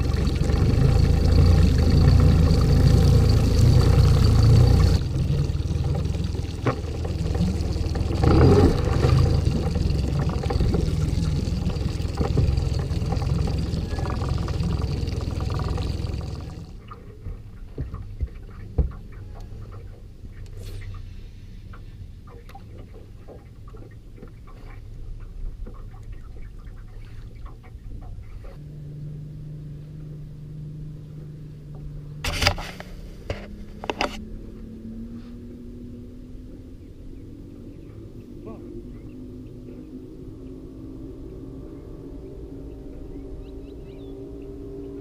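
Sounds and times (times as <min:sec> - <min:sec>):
boat motor hum: 0:00.0 - 0:21.0, 0:21.7 - 0:35.0, 0:35.6 - 0:45.0
water: 0:00.0 - 0:45.0.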